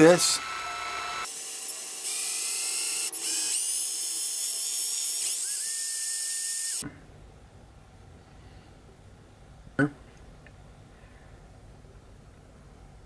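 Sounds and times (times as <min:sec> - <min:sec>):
cordless drill whining: 0:00.2 - 0:06.8.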